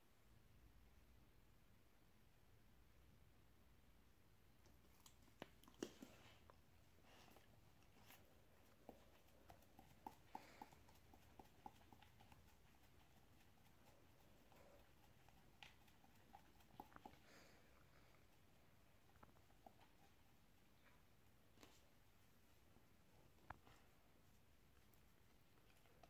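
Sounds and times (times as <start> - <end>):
dog licking and nibbling: 4.6 - 21.0, 24.7 - 26.0.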